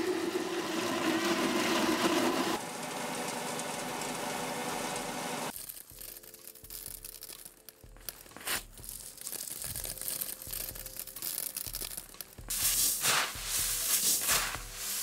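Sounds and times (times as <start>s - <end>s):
coffee beans rattling onto tarp: 5.5s - 15.0s.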